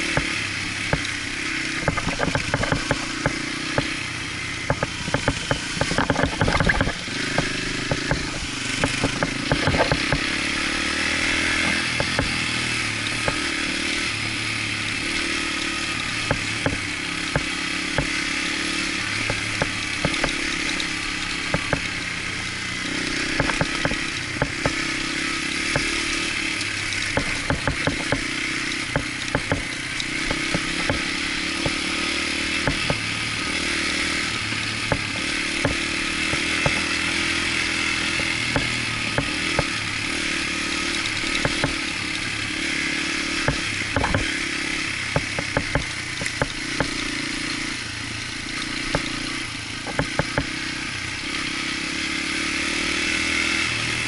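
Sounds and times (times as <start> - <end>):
dirt bike engine revving: 0.0 - 54.0
short clicks and rattles: 4.7 - 10.4.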